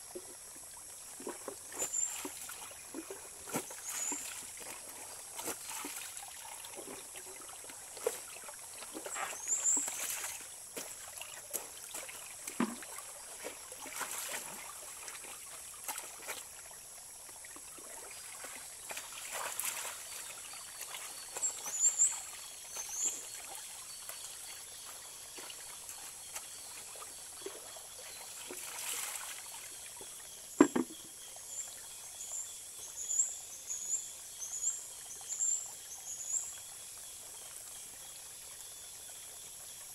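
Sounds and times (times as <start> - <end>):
stream trickling over stones: 0.0 - 39.9
splashes and drips of wet blanket: 1.1 - 30.0.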